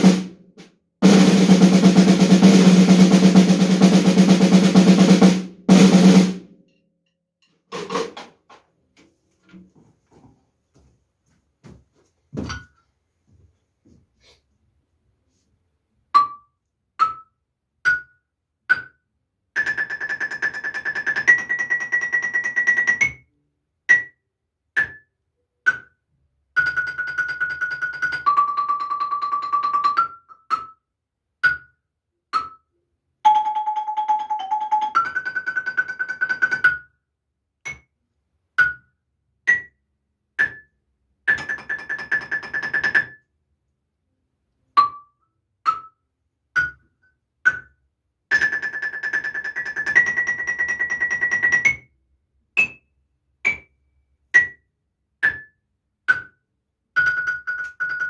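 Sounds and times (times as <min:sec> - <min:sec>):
mallet percussion melody: 0:26.6 - 0:30.8, 0:33.2 - 0:36.8, 0:57.0 - 0:58.0.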